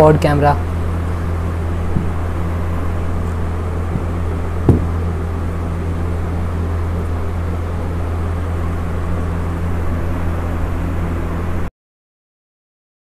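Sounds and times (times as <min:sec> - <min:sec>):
steady low hum: 0:00.0 - 0:11.7
sharp knock: 0:03.9 - 0:04.9.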